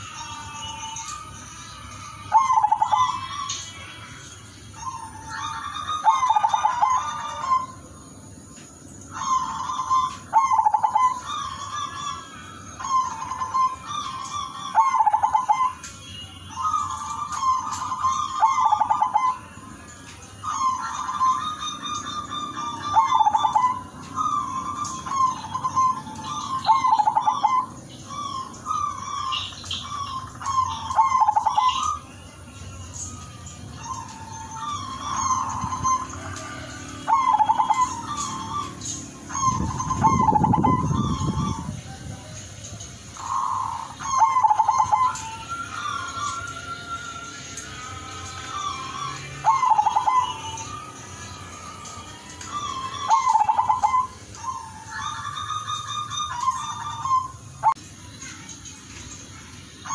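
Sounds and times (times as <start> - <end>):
small birds chirping: 0.0 - 59.9
dove cooing: 2.3 - 3.5, 4.8 - 7.9, 9.1 - 15.9, 16.5 - 19.5, 20.4 - 32.0, 33.1 - 42.4, 43.1 - 47.0, 47.8 - 57.8.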